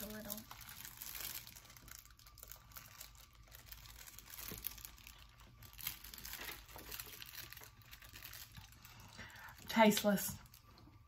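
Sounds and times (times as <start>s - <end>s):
plastic wrapper crinkling: 0.0s - 11.0s.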